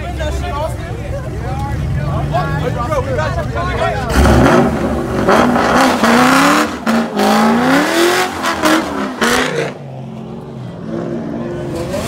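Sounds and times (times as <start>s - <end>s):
tires spinning on pavement: 3.8s - 12.0s
car engine revving: 4.0s - 12.0s.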